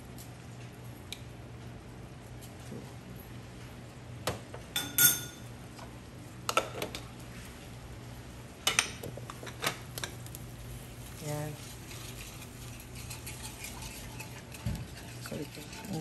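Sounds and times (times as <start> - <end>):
kitchenware clinking: 4.8 - 5.5.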